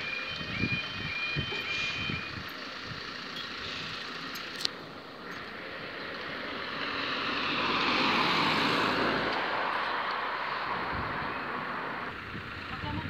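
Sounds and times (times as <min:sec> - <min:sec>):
car passing by: 0:05.4 - 0:12.2.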